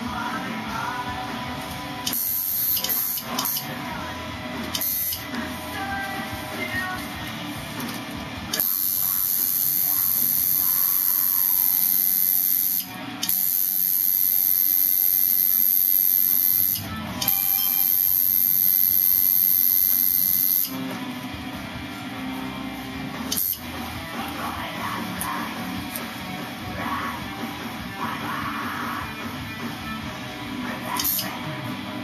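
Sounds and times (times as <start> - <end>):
electric tattoo machine buzzing: 1.8 - 27.7, 29.0 - 32.0.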